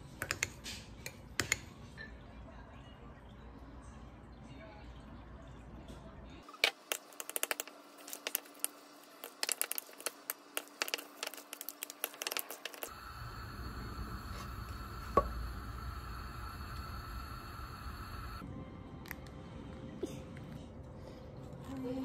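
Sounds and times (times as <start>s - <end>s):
steady hum: 8.1s - 18.4s.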